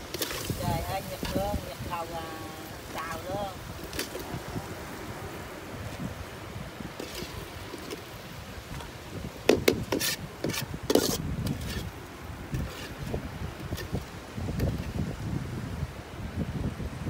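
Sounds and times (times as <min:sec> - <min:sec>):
spatula and foam tray scraping: 0:07.0 - 0:08.1, 0:09.4 - 0:11.9, 0:12.5 - 0:14.1.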